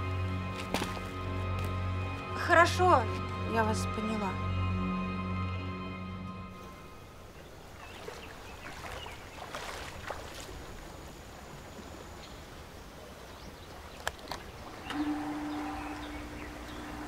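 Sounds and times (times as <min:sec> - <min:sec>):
background music: 0:00.0 - 0:07.3
steady background hiss: 0:06.6 - 0:17.0.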